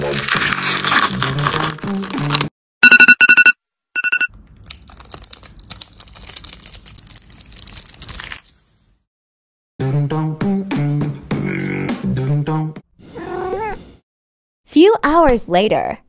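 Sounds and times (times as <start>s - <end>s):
thin ice crackling: 0.0s - 2.4s, 4.6s - 8.5s
quick electronic beeps: 2.8s - 4.3s.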